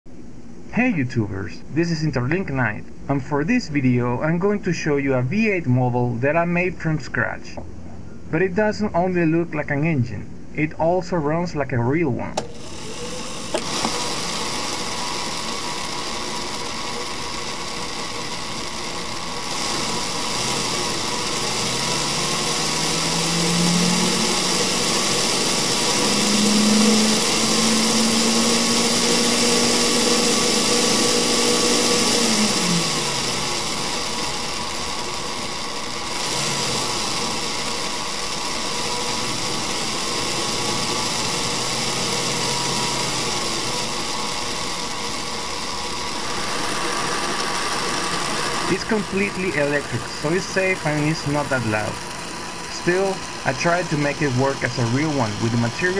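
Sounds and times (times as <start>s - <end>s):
electric motor humming: 12.4s - 55.9s.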